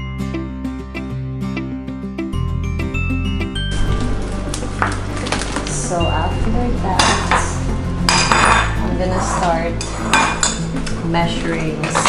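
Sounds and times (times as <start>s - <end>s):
background music with bass: 0.0s - 12.0s
plates and cutlery clattering: 7.0s - 12.0s.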